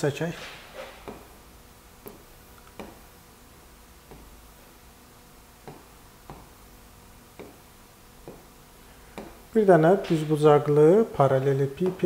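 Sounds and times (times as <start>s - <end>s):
faint room hum: 0.0s - 12.0s
stylus tapping on touchscreen: 2.0s - 3.0s, 8.2s - 8.5s.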